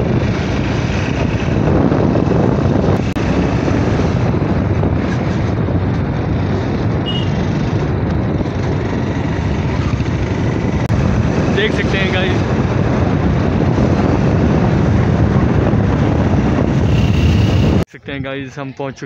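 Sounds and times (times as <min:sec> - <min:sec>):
motorcycle engine: 0:00.0 - 0:17.9
wind noise: 0:00.0 - 0:19.0.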